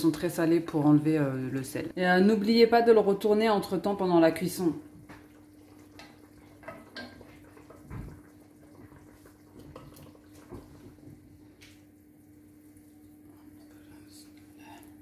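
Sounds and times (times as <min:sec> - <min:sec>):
faint hum: 0:08.4 - 0:15.0.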